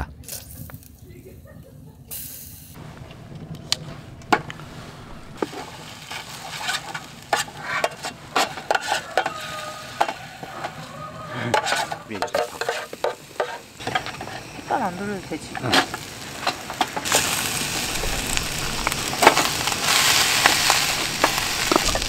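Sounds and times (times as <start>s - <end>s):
garlic sizzling in butter: 2.8s - 22.0s
spatula scraping metal tin: 4.2s - 14.5s.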